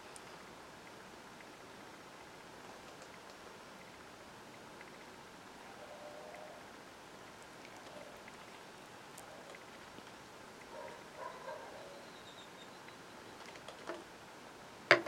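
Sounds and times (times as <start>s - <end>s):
faint whine-like tone: 3.6s - 7.1s.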